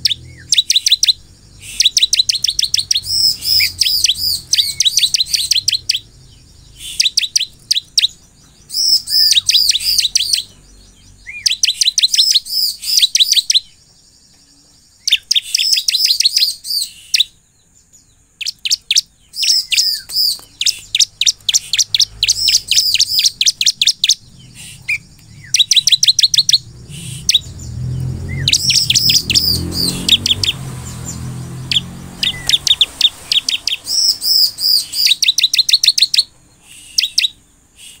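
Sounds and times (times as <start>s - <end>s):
bird chirping song: 0.0s - 38.0s
low rumble: 2.5s - 6.9s, 22.0s - 33.3s.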